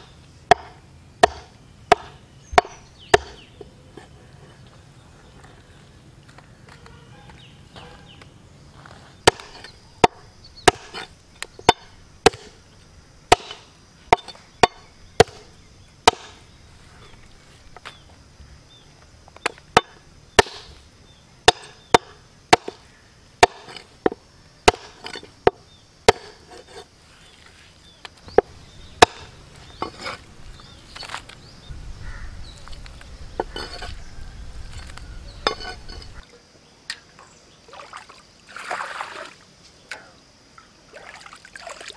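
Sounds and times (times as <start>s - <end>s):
cleaver chopping meat and bone: 0.5s - 3.6s, 9.2s - 12.6s, 13.3s - 16.4s, 19.4s - 20.8s, 21.4s - 26.7s, 28.3s - 30.2s.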